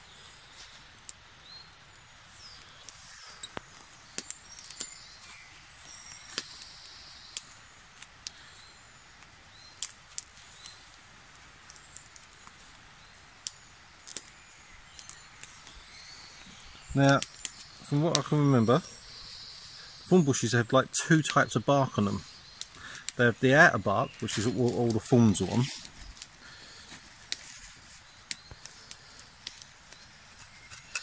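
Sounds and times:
faint bird chirps: 0.0s - 31.0s
steady outdoor hiss: 0.0s - 31.0s
clicks and scraping of bramble stem: 1.9s - 8.5s, 9.2s - 20.6s, 21.2s - 31.0s.

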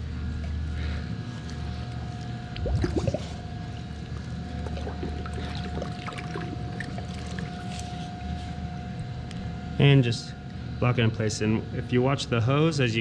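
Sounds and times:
steady hum: 0.0s - 13.0s
pool water splashing: 2.5s - 7.6s.

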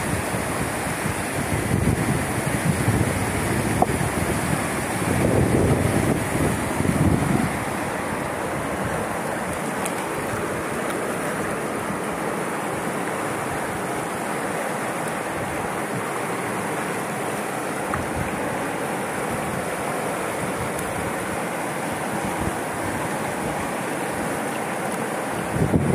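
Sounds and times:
water flowing over rocks: 0.0s - 25.9s.

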